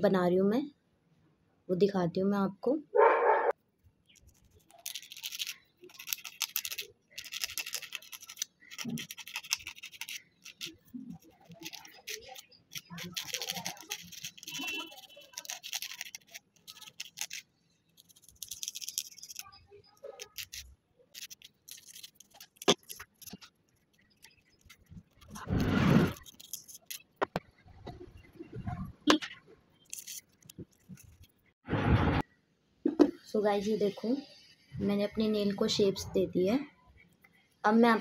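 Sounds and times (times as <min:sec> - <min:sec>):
nail file rasping: 0:04.2 - 0:27.1.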